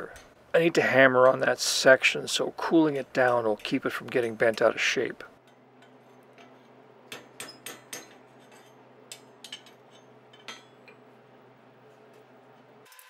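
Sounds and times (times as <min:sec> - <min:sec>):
hammer clinking on anvil: 0:07.1 - 0:11.0.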